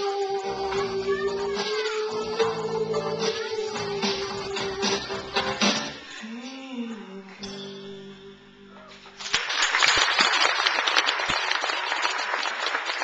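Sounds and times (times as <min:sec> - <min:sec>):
guitar backing music: 0:00.3 - 0:09.2
audience applauding: 0:09.1 - 0:13.0.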